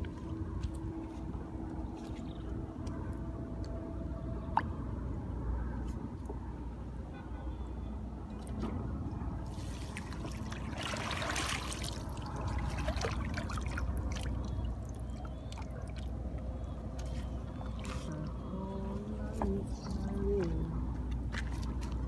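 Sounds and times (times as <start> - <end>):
water sloshing and trickling in tank: 8.2 - 22.0.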